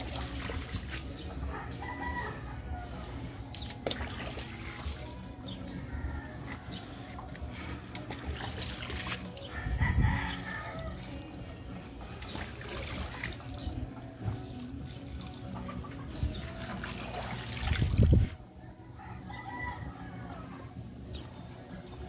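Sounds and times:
rooster crowing: 9.5s - 11.2s, 18.8s - 20.8s.

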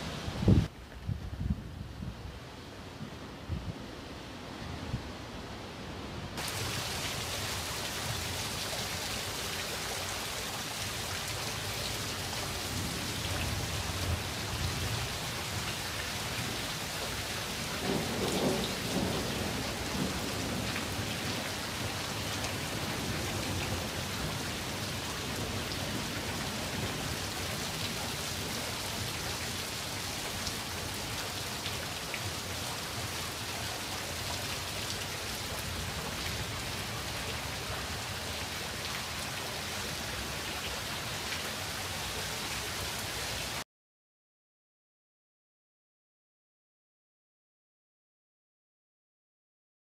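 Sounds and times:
heavy rain falling: 6.4s - 43.6s
thunder rolling: 17.8s - 21.1s.

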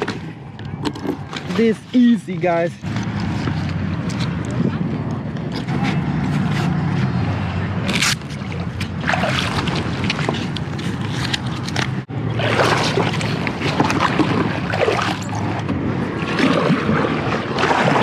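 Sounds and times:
water sloshing and splashing: 0.0s - 18.0s
wind on microphone: 0.0s - 18.0s
paddle splashing in water: 7.8s - 18.0s.

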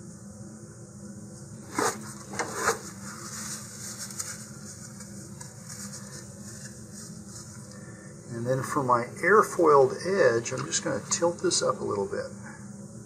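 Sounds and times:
paper rustling: 1.7s - 7.7s.

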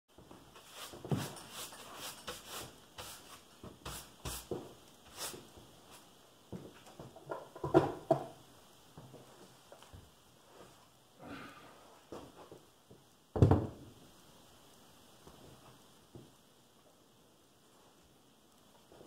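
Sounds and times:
hand brushing on wood: 0.5s - 6.1s
knocks on wooden workbench: 7.3s - 8.3s, 13.4s - 13.8s.

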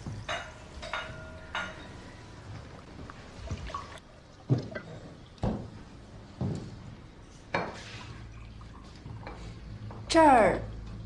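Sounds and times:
footsteps on wooden floor: 5.4s - 6.8s.

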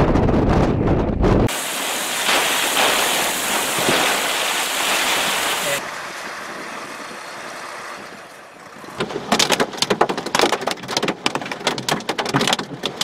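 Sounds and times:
steady hiss: 1.5s - 5.8s.

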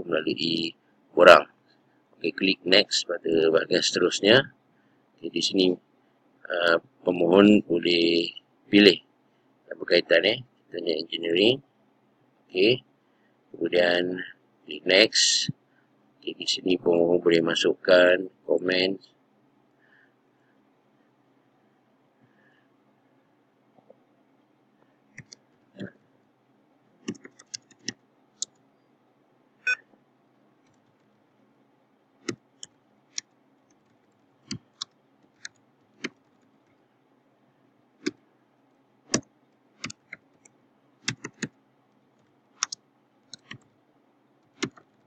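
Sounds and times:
keyboard keystroke clicks: 39.1s - 41.6s, 42.6s - 43.6s, 44.5s - 44.9s.

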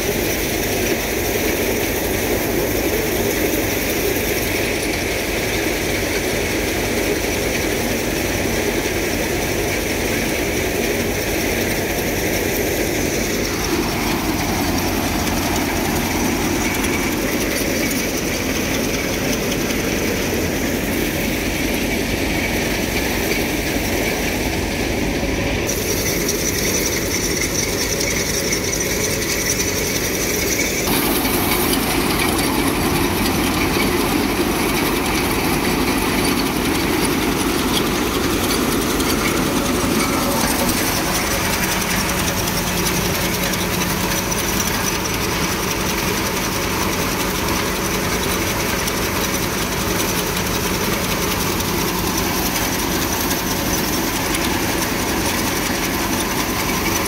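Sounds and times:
grain thresher running: 0.0s - 57.0s.

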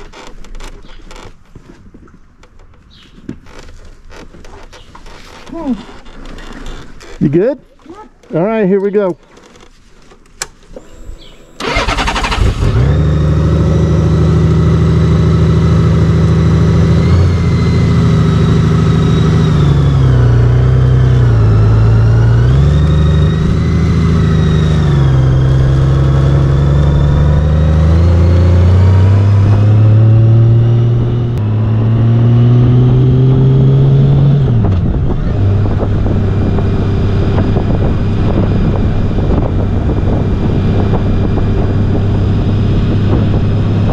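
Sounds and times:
motorcycle engine running: 10.8s - 43.9s.

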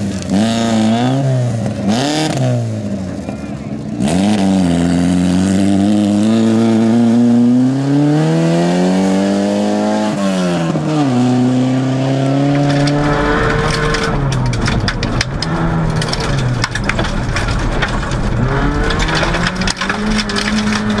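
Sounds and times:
car engine revving high: 0.0s - 16.7s, 17.3s - 21.0s
rapid crackling: 12.5s - 21.0s.

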